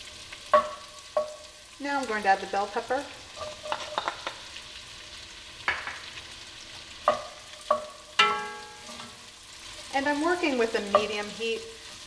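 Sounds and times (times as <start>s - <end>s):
vegetables sizzling in butter: 0.0s - 12.0s
spoon knocking against pot: 0.5s - 1.4s, 3.4s - 4.4s, 7.1s - 8.7s, 10.9s - 11.2s
wooden spoon stirring: 3.3s - 4.4s.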